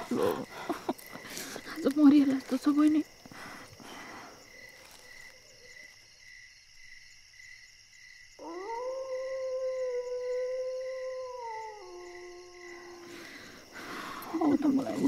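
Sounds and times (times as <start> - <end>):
dog howling: 8.4 - 13.2.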